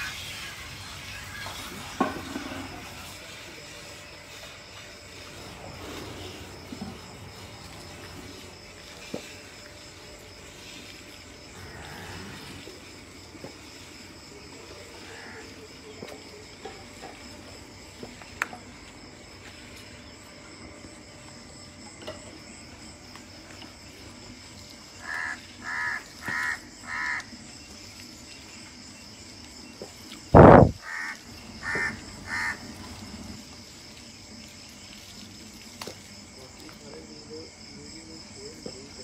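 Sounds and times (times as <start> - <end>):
crow cawing: 25.0 - 27.3, 30.8 - 32.6.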